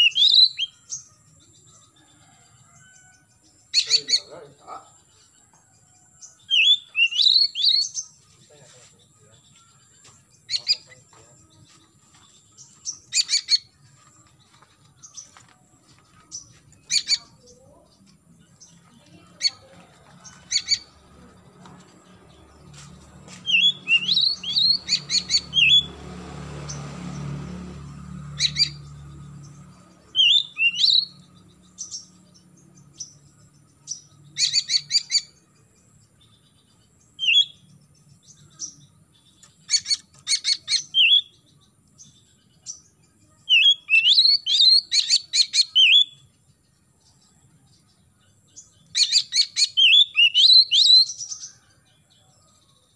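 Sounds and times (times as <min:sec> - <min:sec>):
magpie-robin chirps and whistles: 0:00.0 - 0:00.8, 0:06.5 - 0:08.1, 0:12.9 - 0:13.7, 0:23.4 - 0:25.9, 0:30.1 - 0:31.1, 0:34.4 - 0:35.3, 0:37.2 - 0:37.6, 0:39.7 - 0:41.4, 0:43.5 - 0:46.2, 0:48.9 - 0:51.3.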